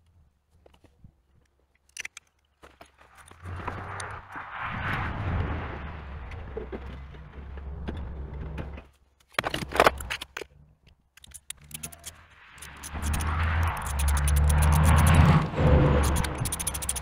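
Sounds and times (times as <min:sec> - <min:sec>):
low rumble: 0:03.6 - 0:08.8, 0:12.2 - 0:17.0.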